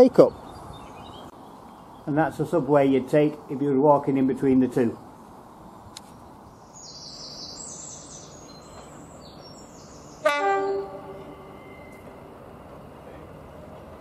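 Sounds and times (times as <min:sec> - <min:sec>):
birds singing: 0:00.0 - 0:03.6, 0:04.6 - 0:12.5
diesel locomotive horn blast: 0:10.2 - 0:12.3.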